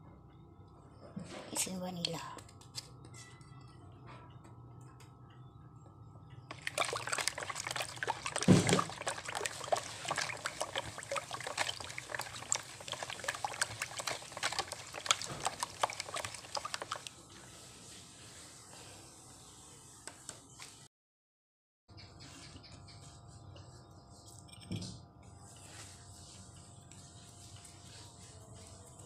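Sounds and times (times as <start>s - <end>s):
liquid sloshing in a bowl: 6.5s - 17.2s.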